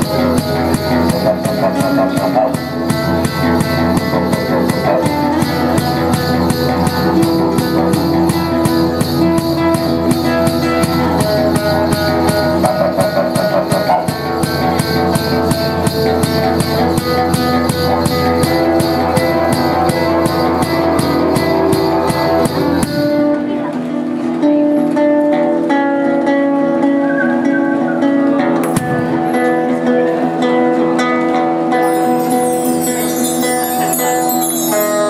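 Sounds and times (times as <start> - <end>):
steady percussive beat: 0.0 - 23.4, 28.6 - 29.7, 31.8 - 35.0
didgeridoo drone: 0.0 - 24.5
strummed acoustic guitar: 0.0 - 35.0.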